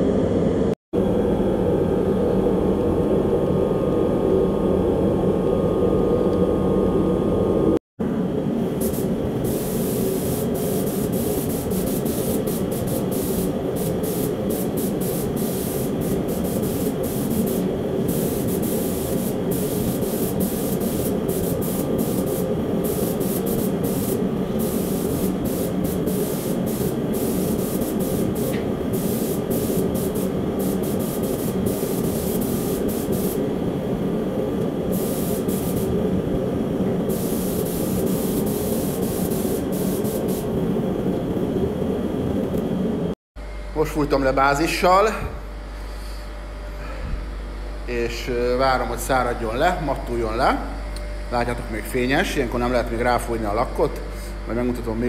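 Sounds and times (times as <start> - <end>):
low air rush: 0.0 - 43.2
paint spray gun hissing: 8.8 - 33.5, 34.9 - 36.1, 37.0 - 40.6.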